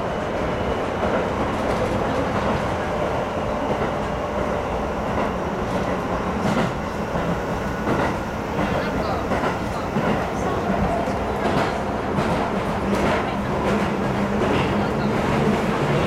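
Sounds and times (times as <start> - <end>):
train wheels rumbling on rails: 0.0 - 16.0
rail joint clack: 5.1 - 16.0.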